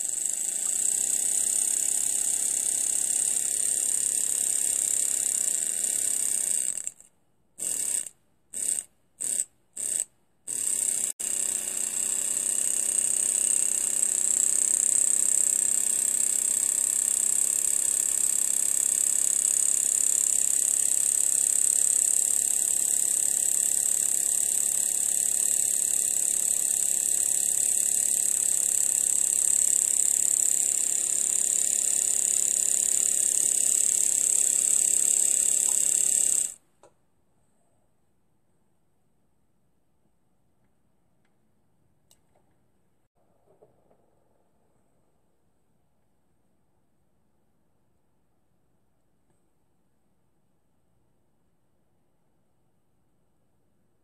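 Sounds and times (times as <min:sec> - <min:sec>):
small steam engine hissing: 0:11.5 - 0:36.5.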